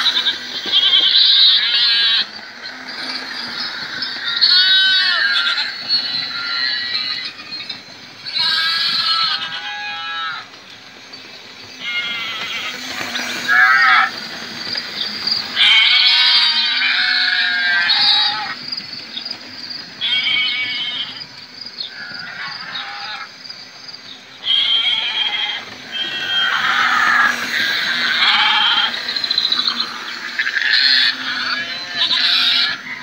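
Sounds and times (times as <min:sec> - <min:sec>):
recorded sheep and goat bleats: 0:30.7 - 0:32.8.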